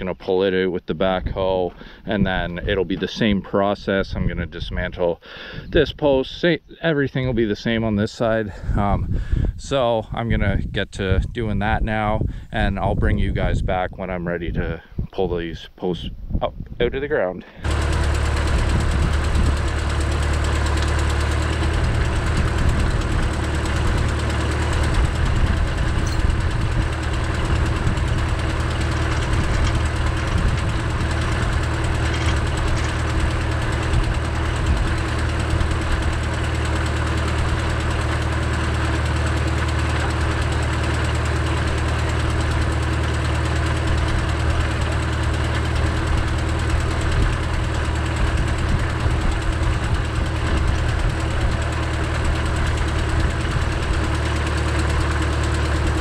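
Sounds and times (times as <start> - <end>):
diesel engine idling: 17.5 - 56.0.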